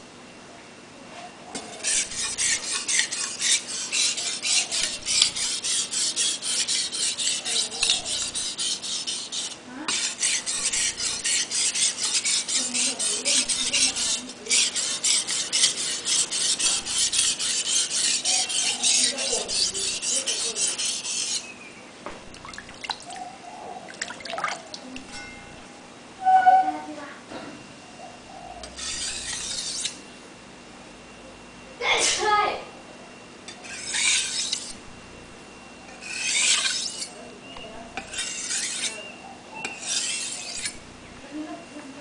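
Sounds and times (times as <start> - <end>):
knife scraping on whetstone: 1.5 - 21.5, 28.6 - 30.0, 33.5 - 34.8, 35.9 - 40.8.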